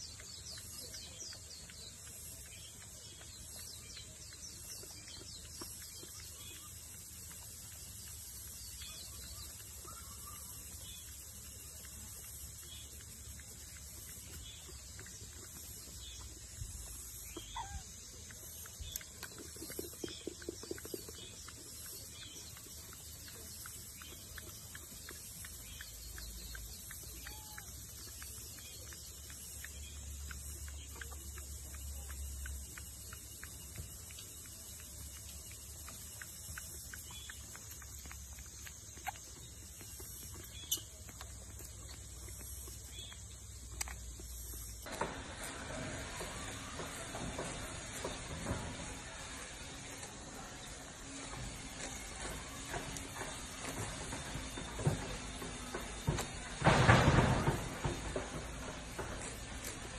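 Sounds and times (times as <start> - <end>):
monkey chewing and smacking: 0.0 - 59.9
steady hiss: 44.0 - 59.9
loud full background noise: 44.8 - 59.9.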